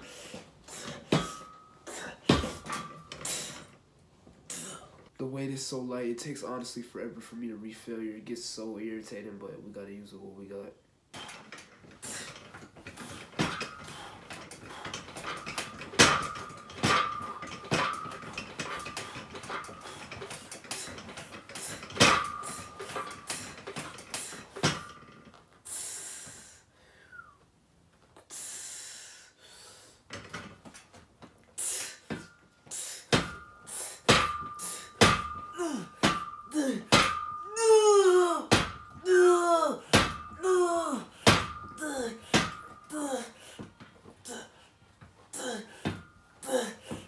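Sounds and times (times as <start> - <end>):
metal weight plates clanking: 0.7 - 3.7, 11.2 - 25.4, 31.7 - 39.1, 39.8 - 43.6
hard breathing: 11.1 - 24.7, 28.2 - 30.3, 31.6 - 37.1, 39.8 - 47.0.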